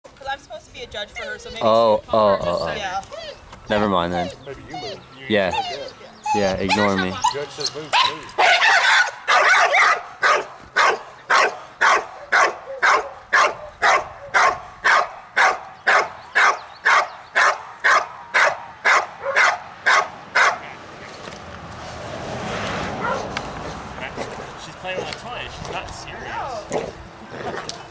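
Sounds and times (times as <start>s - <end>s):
dog barking loudly: 6.7s - 20.7s, 23.0s - 23.4s.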